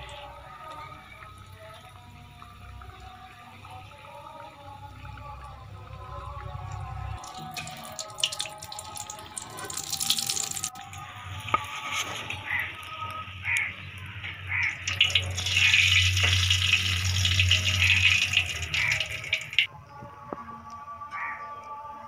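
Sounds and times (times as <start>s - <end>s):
food deep-frying sizzle: 0.0s - 19.7s.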